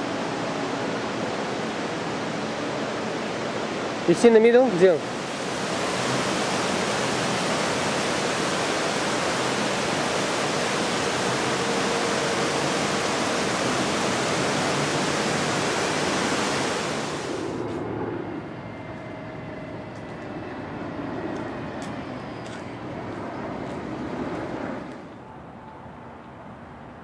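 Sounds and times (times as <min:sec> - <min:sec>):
waterfall pouring into pond: 0:05.0 - 0:17.3.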